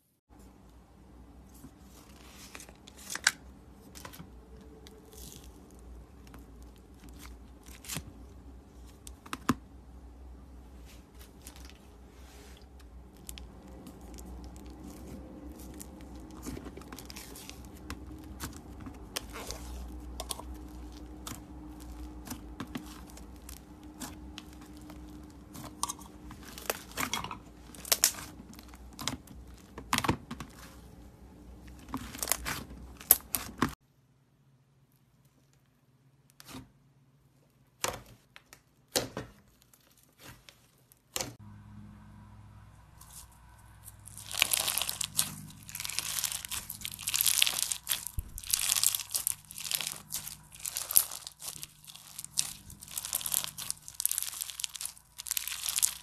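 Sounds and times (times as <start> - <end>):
slime clicking and popping: 45.8 - 56.0.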